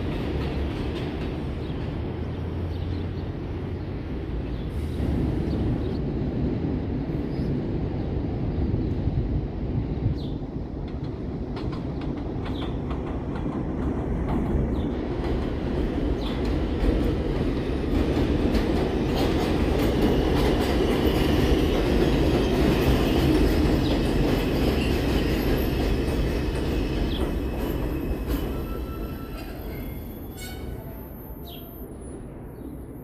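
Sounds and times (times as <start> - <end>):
train wheels rumbling on rails: 0.0 - 33.0
clicks from rail joints: 10.8 - 15.6.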